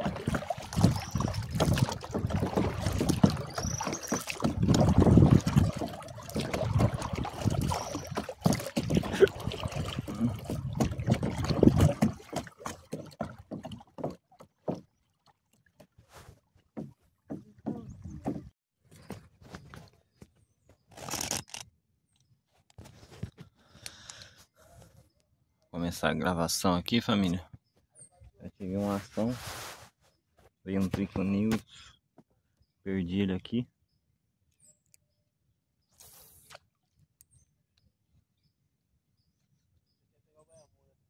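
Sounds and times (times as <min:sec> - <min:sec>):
wind on microphone: 0:00.0 - 0:03.6, 0:04.3 - 0:08.1, 0:08.8 - 0:12.2
paddle splashing in water: 0:00.0 - 0:18.5.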